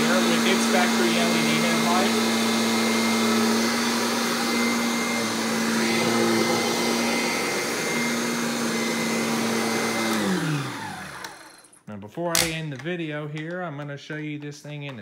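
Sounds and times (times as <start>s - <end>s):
vacuum cleaner motor running: 0.0s - 11.8s.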